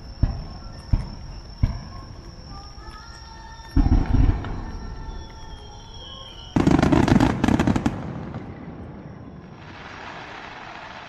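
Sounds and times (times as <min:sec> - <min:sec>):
firework bangs and cracks: 0:00.0 - 0:02.2, 0:03.8 - 0:05.2, 0:06.5 - 0:11.0
faint hiss: 0:00.0 - 0:11.0.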